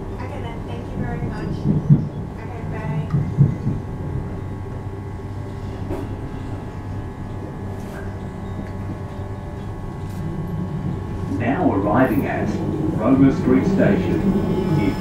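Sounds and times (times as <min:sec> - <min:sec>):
constant electric hum: 0:00.0 - 0:15.0
train running rumble: 0:00.0 - 0:15.0.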